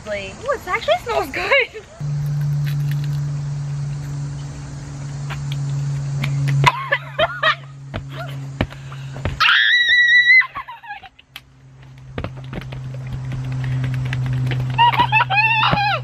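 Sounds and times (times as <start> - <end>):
high piercing scream: 9.4 - 10.6
women screaming and shrieking: 9.4 - 11.1, 14.7 - 16.0.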